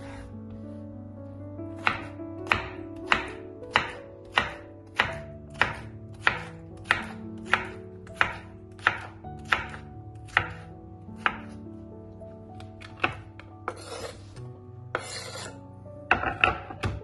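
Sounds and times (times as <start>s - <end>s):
knife chopping on wooden board: 1.8s - 11.6s, 12.8s - 14.4s, 15.0s - 15.5s.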